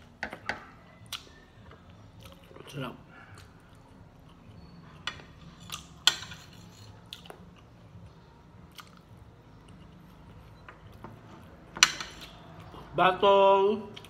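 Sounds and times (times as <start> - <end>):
soft chewing: 0.5 - 13.0.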